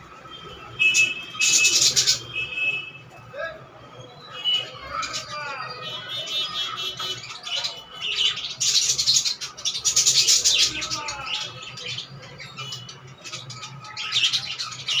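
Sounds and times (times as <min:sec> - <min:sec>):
budgerigars chirping: 0:01.0 - 0:02.3, 0:06.4 - 0:15.0.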